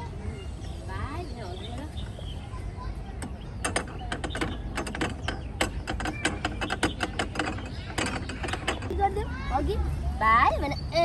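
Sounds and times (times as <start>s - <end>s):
playground panel bars rattling: 3.1s - 9.7s.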